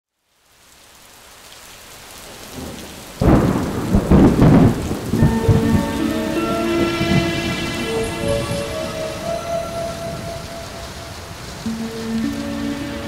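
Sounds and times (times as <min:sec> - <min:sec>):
steady rain: 0:00.1 - 0:13.0
thunder clap rolling: 0:02.6 - 0:13.0
held music tones: 0:05.2 - 0:13.0.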